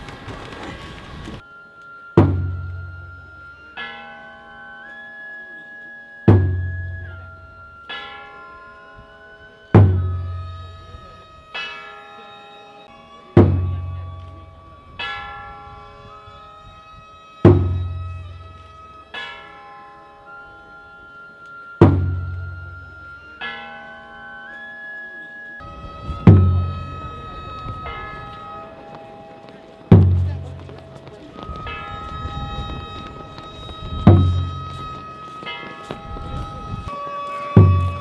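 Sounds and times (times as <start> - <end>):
flute holding long high notes: 1.4 - 29.9, 31.3 - 38.0
ringing metal strike: 1.5 - 16.5, 17.4 - 28.8, 31.3 - 38.0
large drum strikes: 2.2 - 2.6, 21.8 - 22.2.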